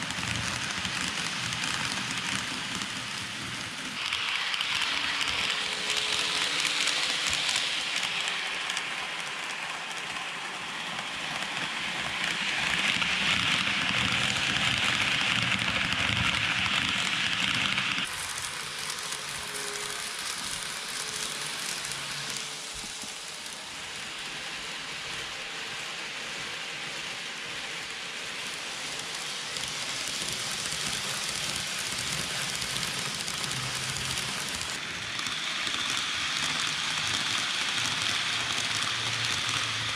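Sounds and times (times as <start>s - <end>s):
model train wheels rolling on rail: 0.0s - 39.9s.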